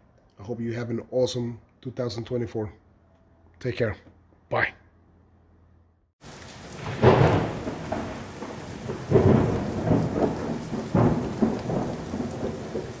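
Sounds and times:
steady rain: 6.2 - 13.0
thunder rumbling: 6.2 - 13.0.

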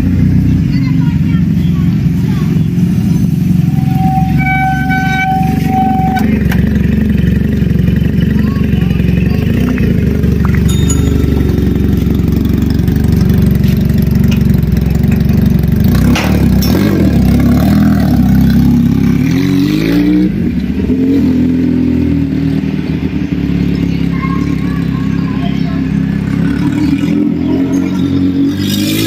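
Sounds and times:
motorcycle engine accelerating: 0.0 - 29.0.

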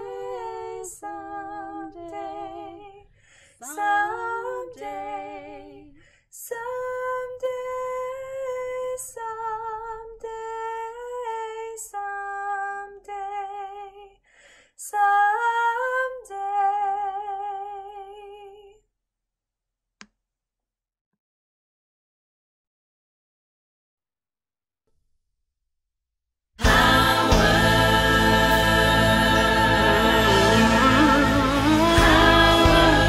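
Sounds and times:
women singing long held notes: 0.0 - 3.0, 3.6 - 10.8, 26.6 - 33.0.

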